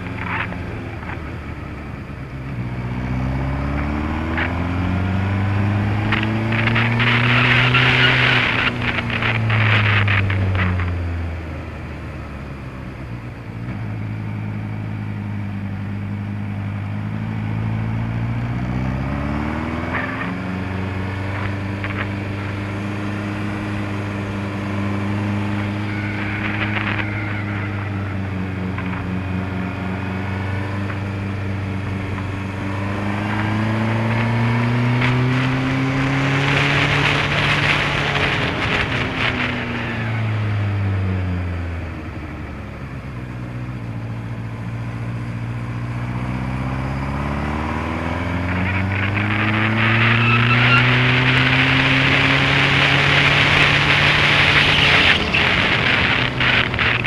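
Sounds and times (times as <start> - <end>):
motorcycle engine accelerating: 0.0 - 57.0
wind rush: 21.8 - 40.7, 51.2 - 57.0.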